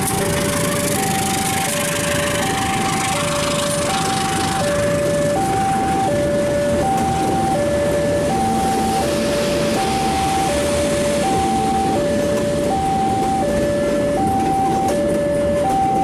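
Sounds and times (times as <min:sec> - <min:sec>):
train wheels clattering on rails: 0:00.0 - 0:05.5, 0:08.9 - 0:16.0
level crossing two-tone alarm: 0:00.0 - 0:16.0.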